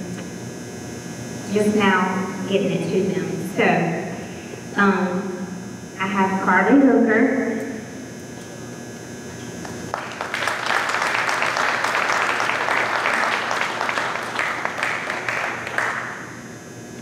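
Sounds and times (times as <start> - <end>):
audience applauding: 9.9 - 16.2.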